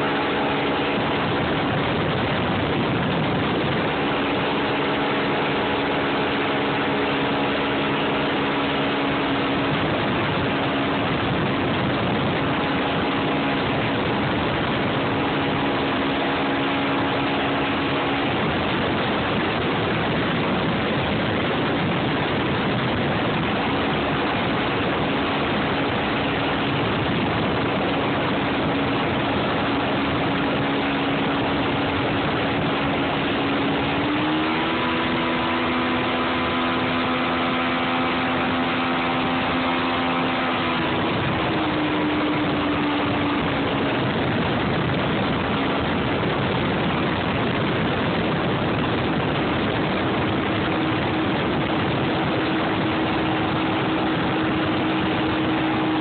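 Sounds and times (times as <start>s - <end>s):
outboard motor running: 0.0s - 56.0s
wind and water rushing: 0.0s - 56.0s.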